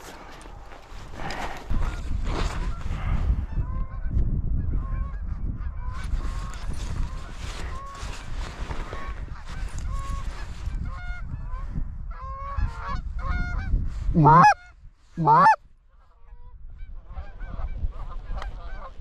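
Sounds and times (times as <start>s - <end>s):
wind rumble on microphone: 0.0s - 19.0s
geese honking: 14.2s - 14.6s, 15.2s - 15.6s.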